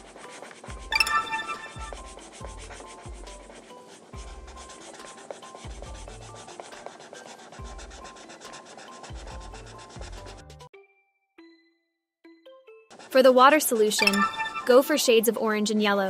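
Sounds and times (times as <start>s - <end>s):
instrumental background music: 0.0s - 15.9s.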